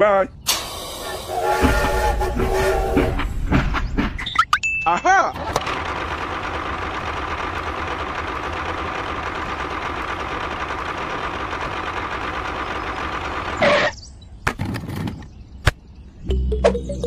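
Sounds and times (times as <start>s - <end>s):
small tractor engine humming: 5.4s - 13.9s.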